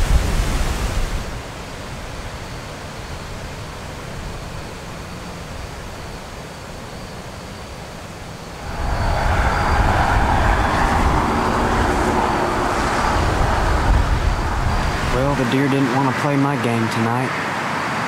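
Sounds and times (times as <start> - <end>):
wind rushing through woods: 0.0 - 18.0
wind buffeting microphone: 8.5 - 15.6.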